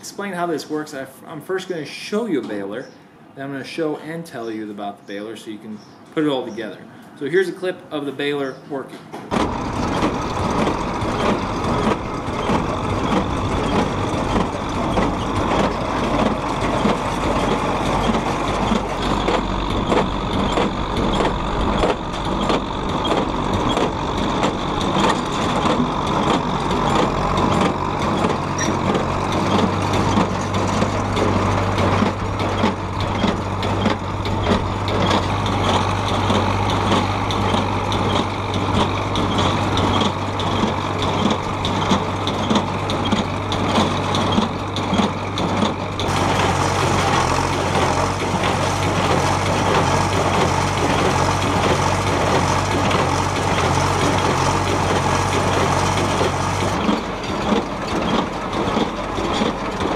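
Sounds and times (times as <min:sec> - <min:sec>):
tractor engine running: 0:09.2 - 0:59.9.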